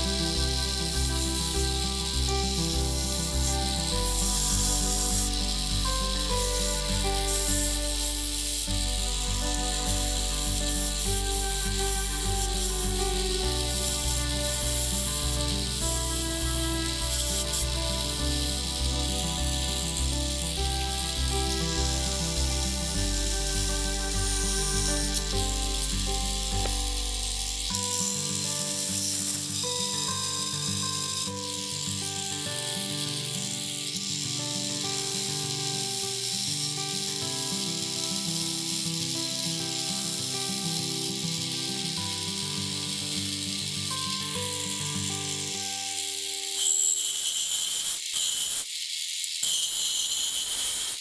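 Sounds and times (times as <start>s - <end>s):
background music: 0.0s - 30.6s
lathe tool cutting wood hiss: 0.0s - 51.0s.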